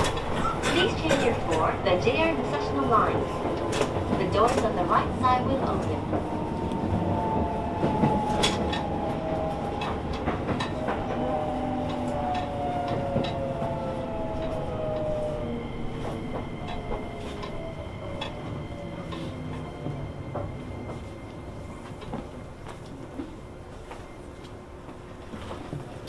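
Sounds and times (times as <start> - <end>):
wheels clicking over rail joints: 0.0 - 6.2.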